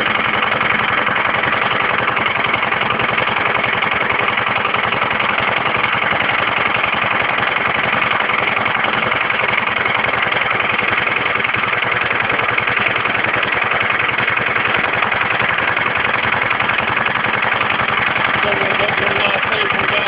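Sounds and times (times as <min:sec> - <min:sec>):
tractor engine idling: 0:00.0 - 0:20.0.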